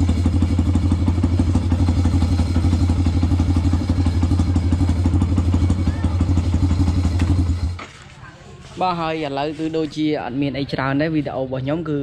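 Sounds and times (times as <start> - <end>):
motorcycle engine idling: 0.0 - 7.8.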